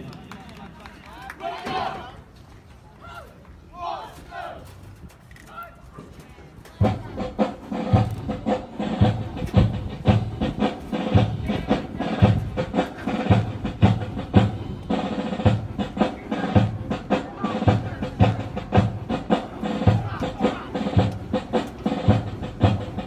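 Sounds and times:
military band playing a march: 6.8s - 23.0s
steady drum beat: 6.8s - 23.0s.

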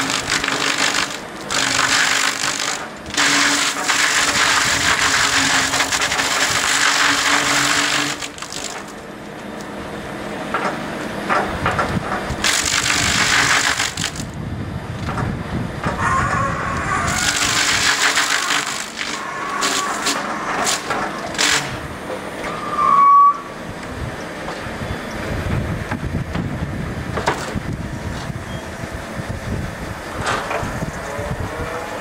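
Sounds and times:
milling shaft cutting wood chips: 0.0s - 14.4s, 15.8s - 22.9s
low machine rumble: 0.0s - 32.0s.

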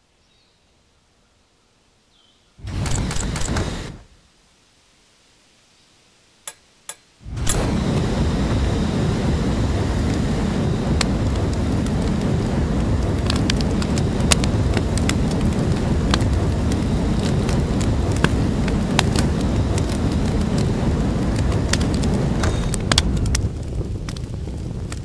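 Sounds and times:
crackles and pops: 2.6s - 4.2s, 6.4s - 25.0s
flamethrower flame rushing: 2.6s - 4.2s, 7.2s - 25.0s.

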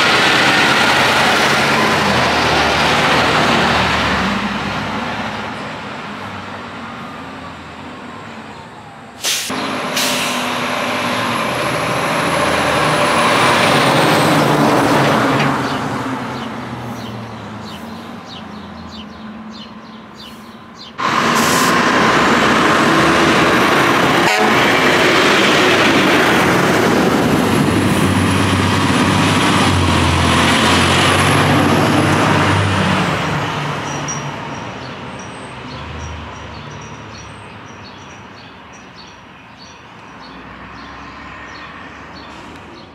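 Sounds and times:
truck engines running: 0.0s - 42.9s
sirens: 7.9s - 10.0s
fire truck air horns: 9.2s - 10.6s, 20.3s - 22.0s, 24.1s - 24.9s.

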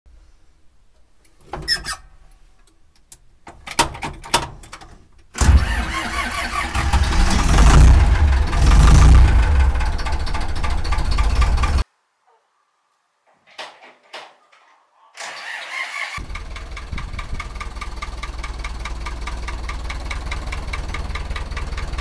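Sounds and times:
diesel tractor engine starting: 5.4s - 11.8s, 15.2s - 22.0s.

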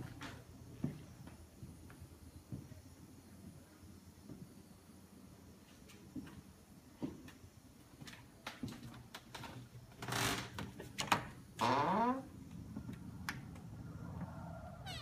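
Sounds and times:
door creaking on hinges: 9.3s - 12.4s, 14.8s - 15.0s.

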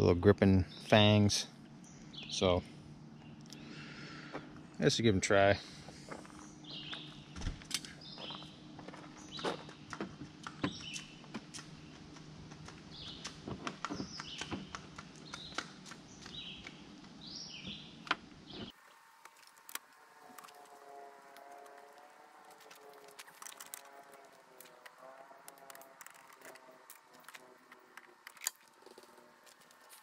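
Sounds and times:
background hum: 0.0s - 30.0s
birds chirping: 0.0s - 30.0s
pliers clicking plastic clips: 24.6s - 29.0s.

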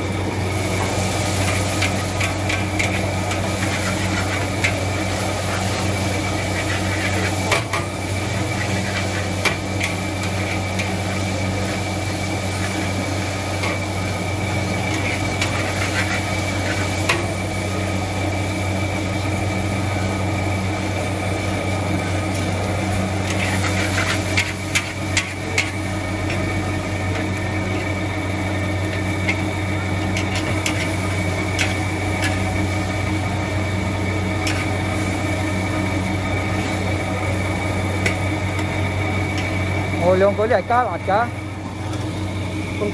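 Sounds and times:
gas burner and fan roar: 0.0s - 42.9s
metal spatula scraping wok: 1.0s - 11.2s, 14.8s - 17.1s, 23.2s - 25.8s, 30.1s - 32.6s, 34.4s - 34.8s.

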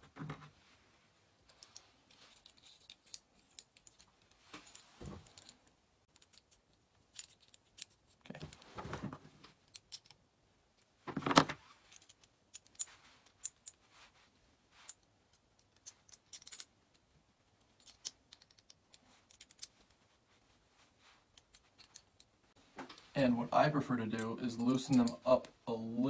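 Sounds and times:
screw and nut clicking: 1.5s - 5.5s, 6.1s - 8.3s, 11.9s - 13.8s, 14.9s - 16.7s, 17.8s - 19.9s, 21.4s - 22.3s.

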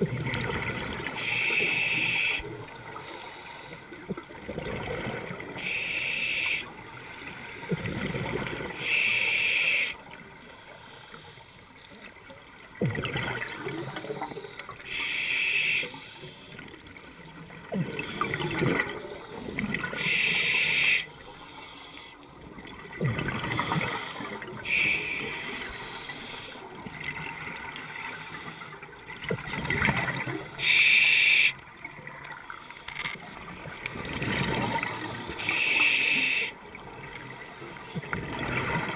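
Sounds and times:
regulator hiss on inhale: 1.2s - 2.4s, 5.6s - 6.7s, 8.8s - 10.0s, 14.0s - 16.6s, 19.2s - 22.3s, 23.6s - 26.7s, 28.1s - 28.8s, 30.4s - 31.6s, 35.0s - 36.6s.

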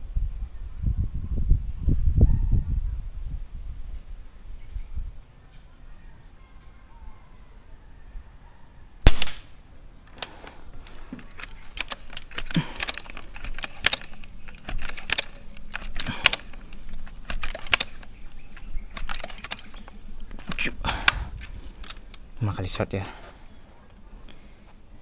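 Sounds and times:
air rifle shot: 9.0s - 9.6s
pump lever metallic clicks: 10.2s - 22.2s.

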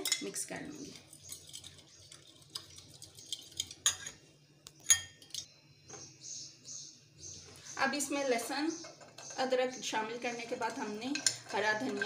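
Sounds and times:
metal spoon scraping glass bowl: 0.8s - 4.2s, 10.7s - 12.0s.

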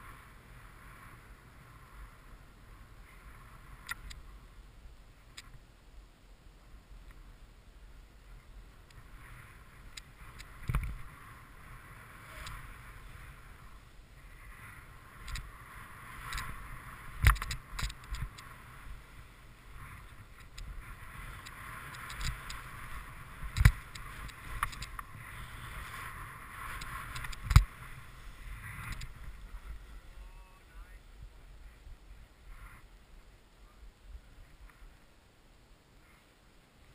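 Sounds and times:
snowboard hissing on snow: 20.7s - 30.7s.

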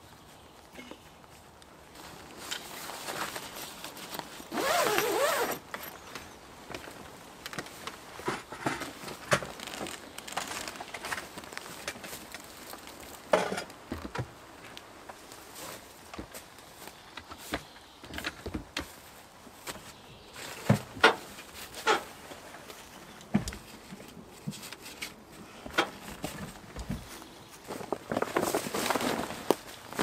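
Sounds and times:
tent fabric rustling: 1.3s - 13.3s, 15.1s - 17.6s, 18.9s - 30.0s
tent zip pulled: 3.2s - 5.8s.

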